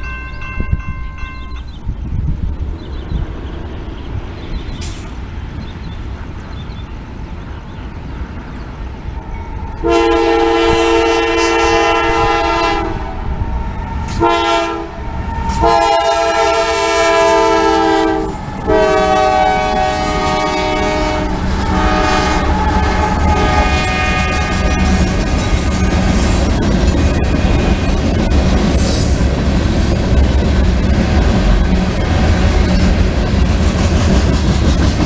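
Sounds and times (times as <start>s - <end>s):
train rumble: 0.0s - 35.0s
locomotive air horn: 9.8s - 13.3s, 14.0s - 25.7s.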